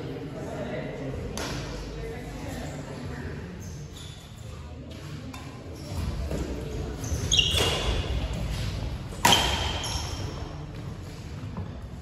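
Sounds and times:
shoes squeaking on court floor: 3.6s - 11.8s
rackets hitting shuttlecock: 9.1s - 10.4s.

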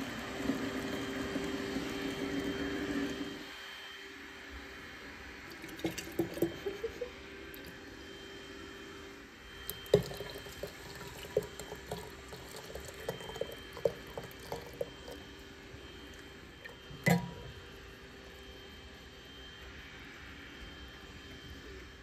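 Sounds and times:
water trickling into flask: 5.5s - 7.8s, 9.6s - 15.3s, 16.1s - 17.5s.

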